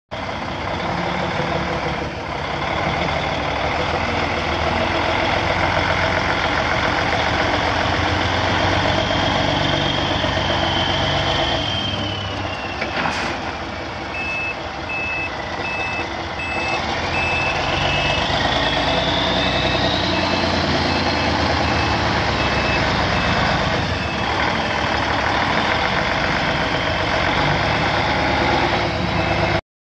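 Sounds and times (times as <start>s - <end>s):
heavy diesel engine running: 0.1s - 29.6s
backup alarm beeping: 14.1s - 24.3s.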